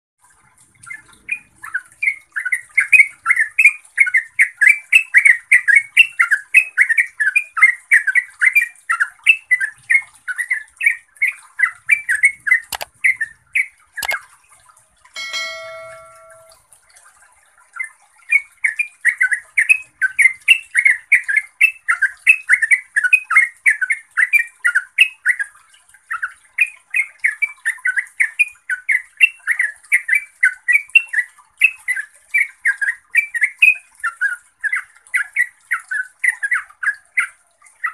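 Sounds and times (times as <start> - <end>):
sharp clicks: 12.7 - 13.0, 14.0 - 14.2
bird singing chattering notes: 15.2 - 16.6
short chime: 15.2 - 16.6.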